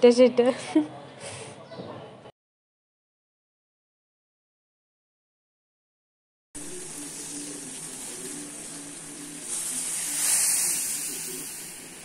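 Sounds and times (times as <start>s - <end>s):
water boiling in saucepan: 6.6s - 12.0s.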